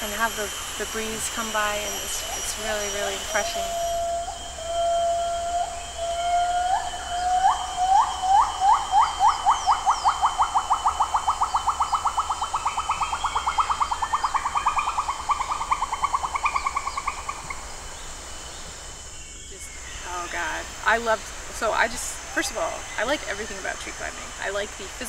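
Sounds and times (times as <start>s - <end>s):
steady high hum: 0.0s - 25.0s
animal whistled call: 2.2s - 16.9s.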